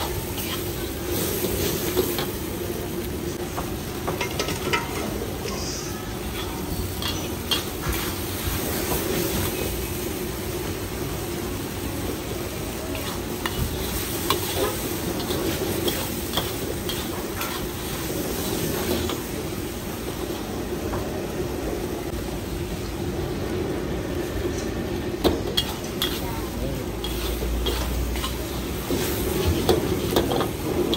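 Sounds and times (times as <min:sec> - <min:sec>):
noodles sizzling in a wok: 0:00.0 - 0:30.9
metal ladle scraping wok: 0:12.9 - 0:19.5, 0:25.4 - 0:30.9.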